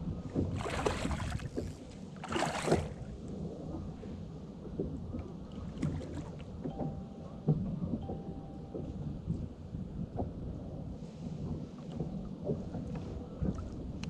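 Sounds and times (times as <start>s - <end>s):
water lapping against kayak hull: 0.0s - 6.7s, 10.1s - 14.0s
wind on microphone: 0.0s - 14.0s.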